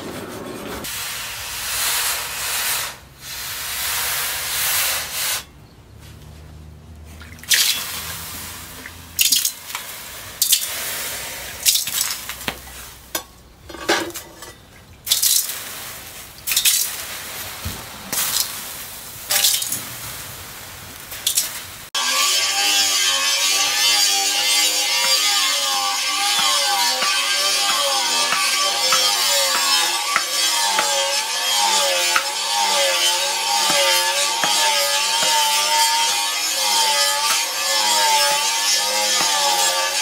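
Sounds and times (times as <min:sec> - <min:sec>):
hot steel sizzling in water: 0:00.8 - 0:05.5, 0:07.5 - 0:13.2, 0:15.0 - 0:40.0
water splashing: 0:07.1 - 0:10.7.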